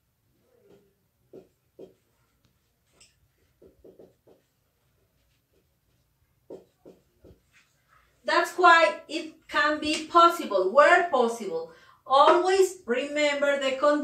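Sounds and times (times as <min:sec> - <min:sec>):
marker writing on whiteboard: 0:00.5 - 0:08.6.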